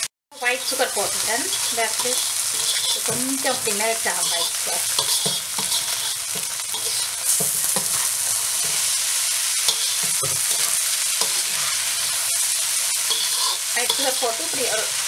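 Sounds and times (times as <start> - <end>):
noodles sizzling in a wok: 0.0 - 15.0
metal spatula scraping a pan: 0.4 - 15.0.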